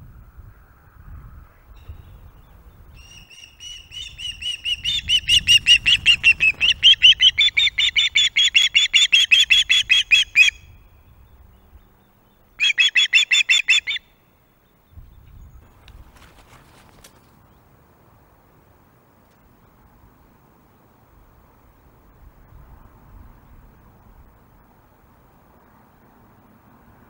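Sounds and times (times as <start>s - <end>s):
osprey shrill chirps: 3.0s - 10.9s, 12.6s - 14.2s.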